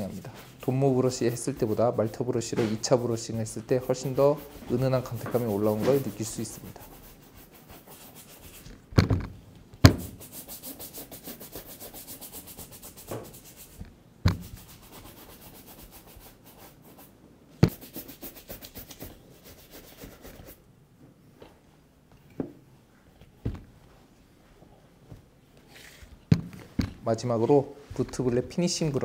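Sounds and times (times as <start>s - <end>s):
sharp knocks: 8.9s - 10.2s.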